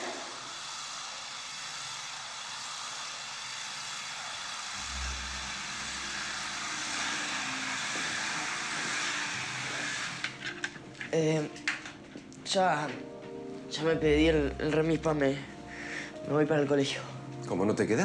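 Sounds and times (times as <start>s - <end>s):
slot car motors whining: 4.8s - 10.6s.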